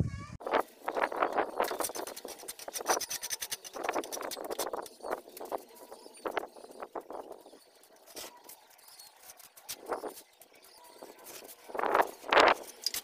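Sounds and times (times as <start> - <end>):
trowel scraping mortar board: 1.5 - 5.5.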